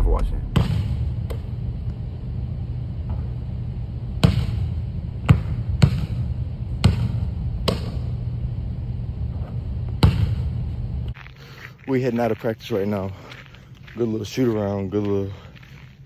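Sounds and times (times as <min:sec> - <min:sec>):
steady low hum: 0:00.0 - 0:16.0
basketball bouncing on hardwood: 0:05.3 - 0:06.2, 0:06.8 - 0:08.0.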